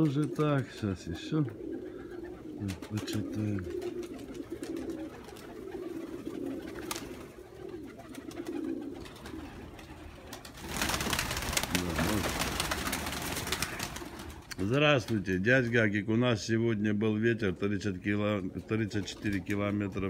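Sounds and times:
pigeons cooing: 0:00.0 - 0:14.6, 0:17.0 - 0:20.0
wings flapping: 0:00.0 - 0:15.2.

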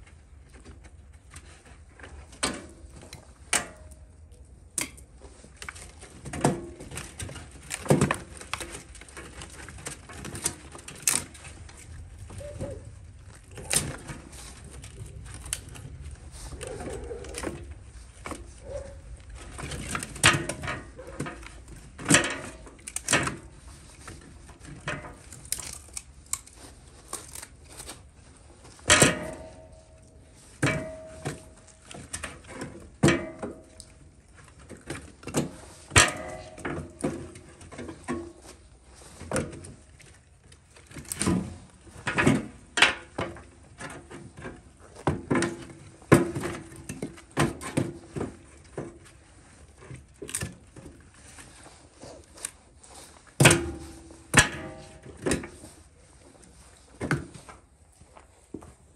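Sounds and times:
firewood knocking and clattering: 0:00.3 - 0:52.6, 0:53.2 - 0:57.6
metallic ring of barrel: 0:28.9 - 0:31.7, 0:53.4 - 0:55.5.

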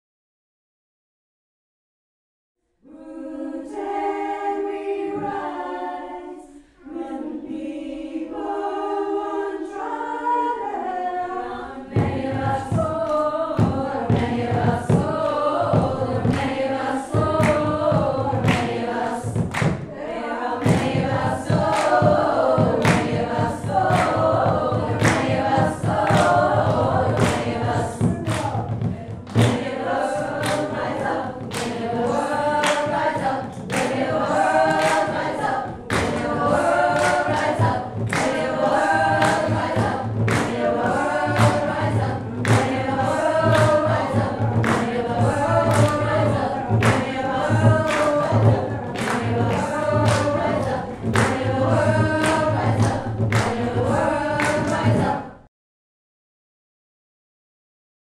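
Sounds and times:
group singing unaccompanied: 0:02.8 - 0:55.5
hand drums beating: 0:11.9 - 0:55.2.

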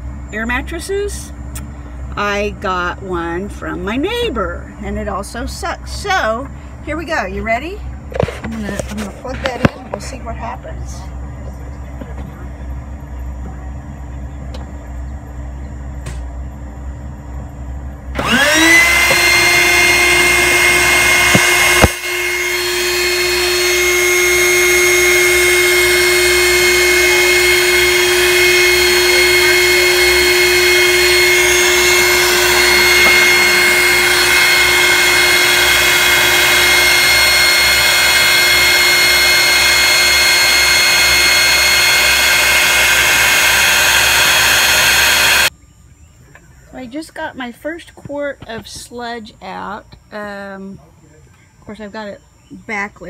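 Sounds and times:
electric pump motor whining: 0:18.2 - 0:45.5.

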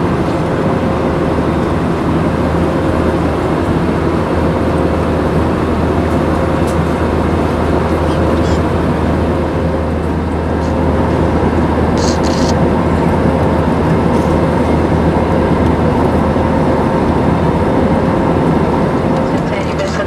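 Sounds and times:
aircraft cabin engine rush: 0:00.0 - 0:20.0.

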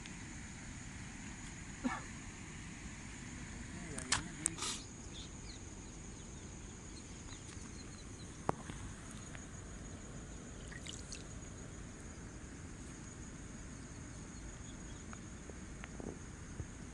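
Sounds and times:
crickets trilling: 0:00.0 - 0:16.9
faint bird chirps: 0:04.6 - 0:08.5.

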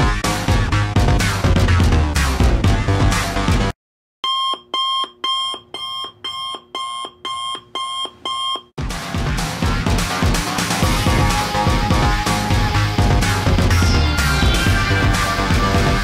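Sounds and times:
electronic music: 0:00.0 - 0:03.7, 0:08.8 - 0:16.0.

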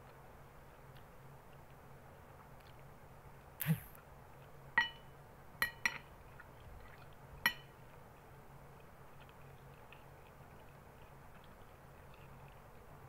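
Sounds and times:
brief dull noise: 0:03.6 - 0:04.0.

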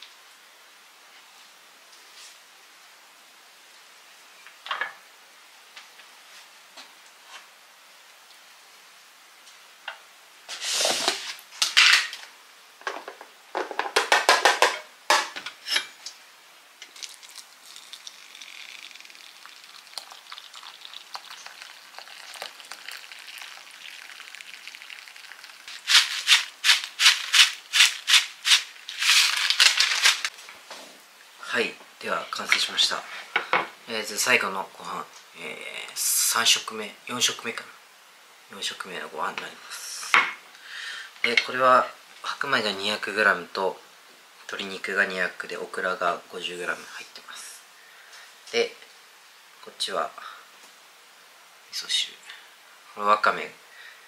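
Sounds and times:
hot water pouring into bowl: 0:16.8 - 0:29.6
seaweed shaken from packet: 0:25.7 - 0:30.3
rustling and rattling: 0:25.7 - 0:30.4.

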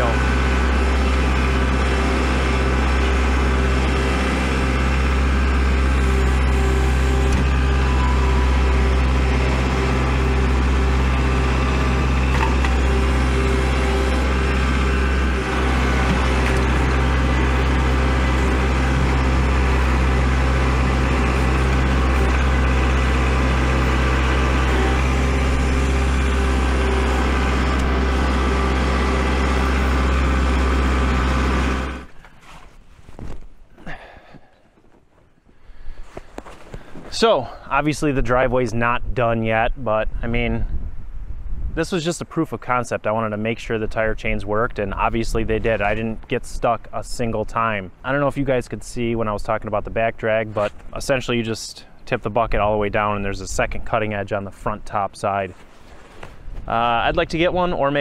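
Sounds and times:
engine droning steadily: 0:00.0 - 0:32.7.

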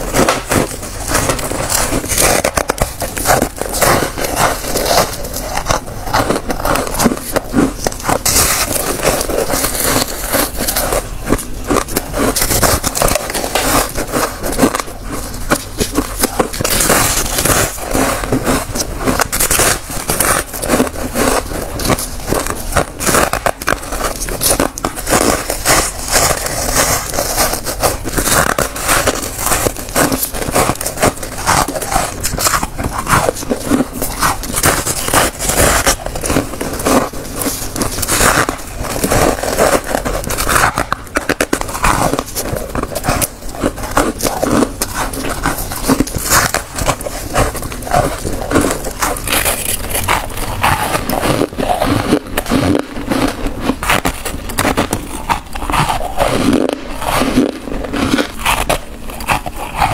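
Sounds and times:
chewing crunchy ice: 0:00.0 - 0:59.9.

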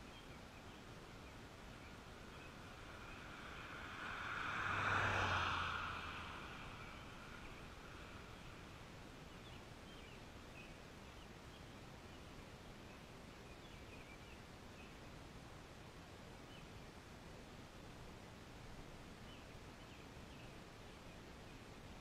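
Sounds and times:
faint bird chirps: 0:00.0 - 0:03.3
steady outdoor hiss: 0:00.0 - 0:22.0
vehicle driving past: 0:02.5 - 0:08.7.

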